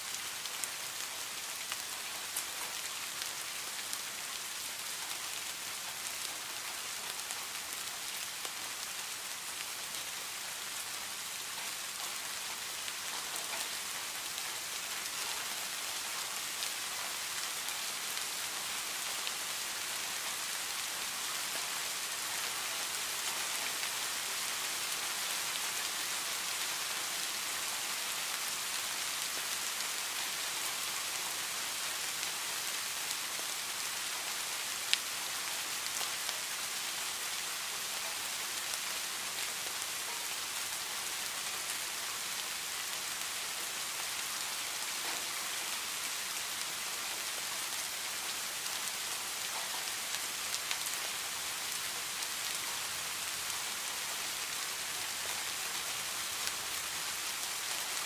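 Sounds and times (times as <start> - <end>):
rain falling on leaves and grass: 0.0 - 58.0
close raindrop ticks: 11.5 - 14.4.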